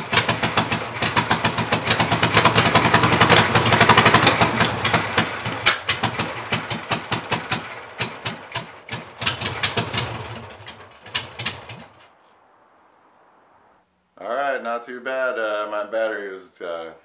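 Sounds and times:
engine running rough with popping: 0:00.0 - 0:12.1.

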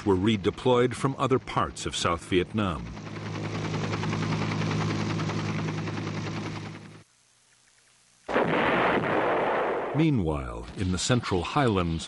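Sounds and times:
helicopter engine and rotor drone: 0:00.0 - 0:07.1
loud artillery fire: 0:08.3 - 0:10.0.

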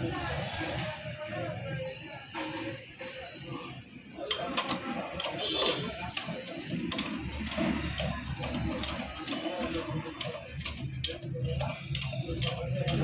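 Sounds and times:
hand tools clicking and clinking: 0:04.2 - 0:13.0.

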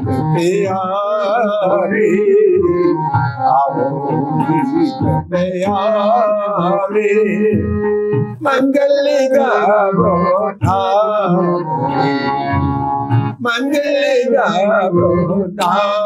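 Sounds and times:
held instrumental notes: 0:00.0 - 0:08.6, 0:09.2 - 0:13.4
man singing: 0:00.0 - 0:12.6, 0:13.3 - 0:16.0.

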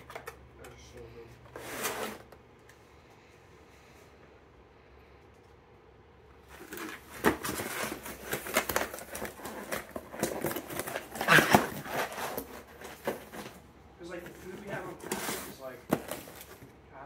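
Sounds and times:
cardboard scraping and rustling: 0:01.5 - 0:02.4, 0:06.4 - 0:16.7.

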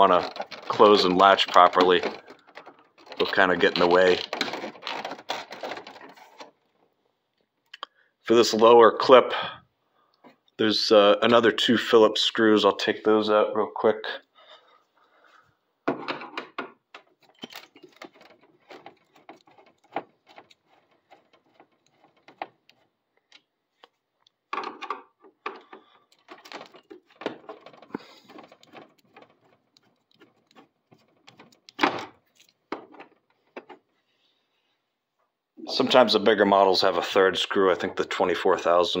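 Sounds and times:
handling clatters: 0:00.0 - 0:06.9, 0:15.9 - 0:23.5, 0:24.5 - 0:34.0
screwdriver clicks and scrapes: 0:17.0 - 0:24.0, 0:24.7 - 0:33.8.

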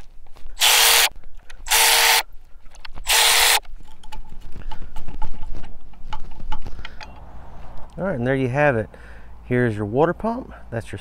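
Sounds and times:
power ratchet bursts: 0:00.6 - 0:02.3, 0:03.0 - 0:03.6
metal clicks and rattles: 0:02.7 - 0:07.3.

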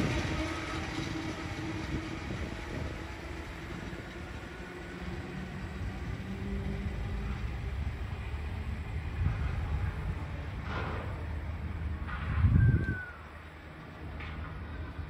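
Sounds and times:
electric train pulling away: 0:00.0 - 0:15.0.

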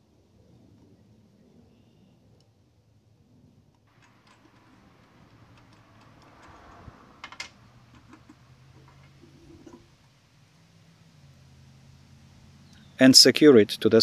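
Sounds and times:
faint clicks and knocks of spool: 0:03.7 - 0:09.9.

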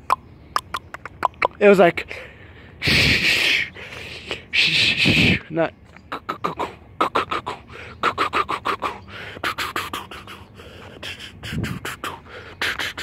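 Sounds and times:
man imitating train wheels clacking: 0:06.1 - 0:10.4, 0:11.0 - 0:13.0.

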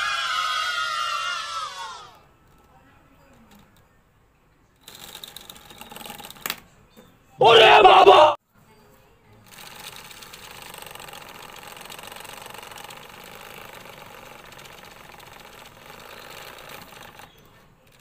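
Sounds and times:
small motor whirring with rattle: 0:04.8 - 0:06.6, 0:09.4 - 0:18.0.

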